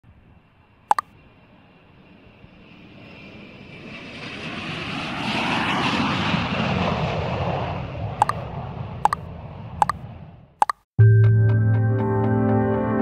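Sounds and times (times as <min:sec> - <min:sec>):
sharp double click: 0:10.6 - 0:10.8.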